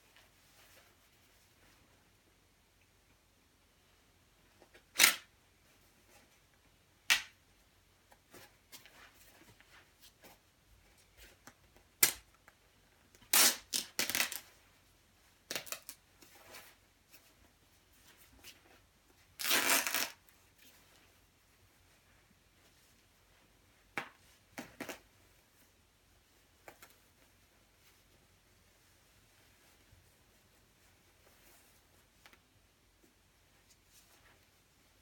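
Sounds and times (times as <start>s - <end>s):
nylon jacket rustling and snapping: 19.4s - 20.7s.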